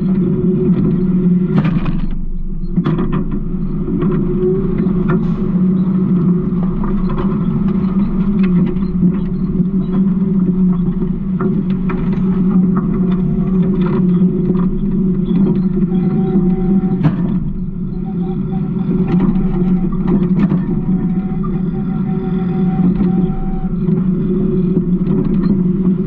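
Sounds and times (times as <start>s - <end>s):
garbage truck engine running: 1.0s - 26.0s
truck body rattles and knocks: 1.5s - 5.4s, 16.9s - 18.0s.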